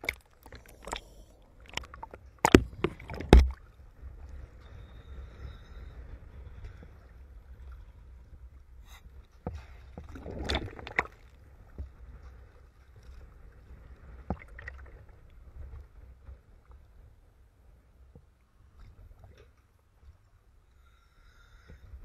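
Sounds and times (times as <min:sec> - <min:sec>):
sea water splashing: 0:00.0 - 0:08.3, 0:09.6 - 0:15.7
steady low rumble: 0:00.0 - 0:08.7.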